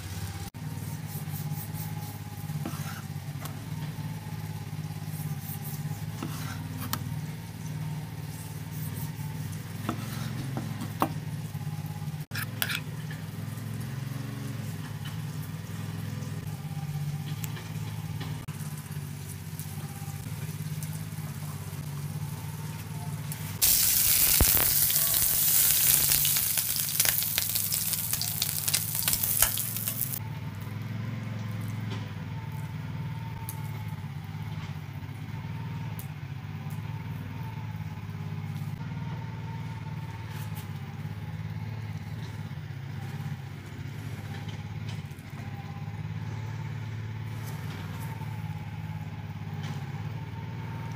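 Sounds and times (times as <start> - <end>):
food sizzling in a hot pan: 23.6 - 30.2.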